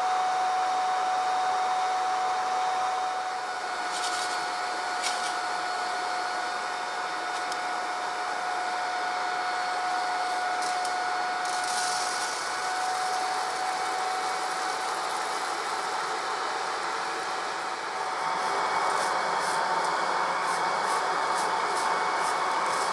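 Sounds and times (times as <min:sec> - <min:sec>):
cooling fan with motor whine: 0:00.0 - 0:22.9.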